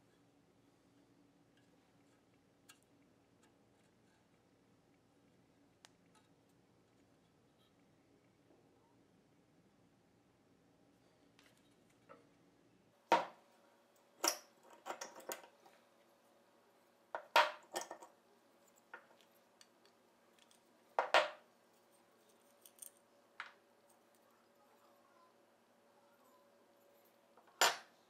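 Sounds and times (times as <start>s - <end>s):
steel parts clinking on metal: 14.2s - 15.5s.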